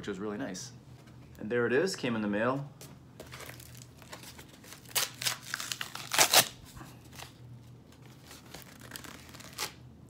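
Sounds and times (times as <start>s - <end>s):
cardboard mailer tearing: 3.3s - 6.6s, 8.1s - 9.8s.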